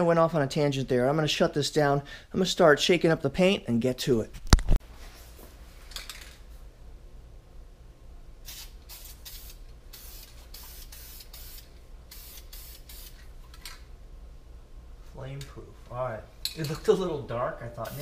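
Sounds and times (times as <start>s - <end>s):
spray paint can hissing: 8.4s - 13.2s.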